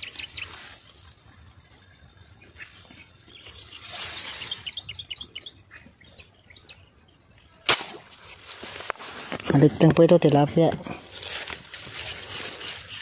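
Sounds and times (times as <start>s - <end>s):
small birds chirping: 0.0s - 7.6s
faint outdoor background: 0.0s - 13.0s.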